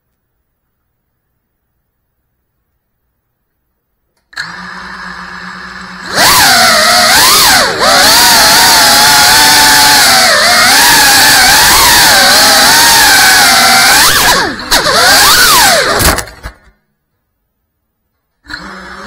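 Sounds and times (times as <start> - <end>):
drone motors high whine: 4.4 - 16.2, 18.5 - 19.0.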